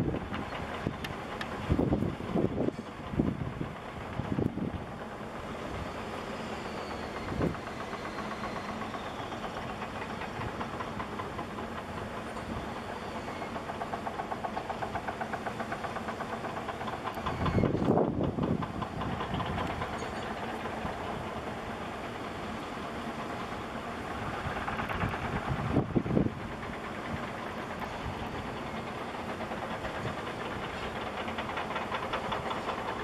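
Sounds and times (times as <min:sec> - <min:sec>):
wind buffeting microphone: 0:00.0 - 0:05.1, 0:07.1 - 0:08.0, 0:16.9 - 0:21.6, 0:24.1 - 0:33.0
engine knocking clatter: 0:00.0 - 0:33.0.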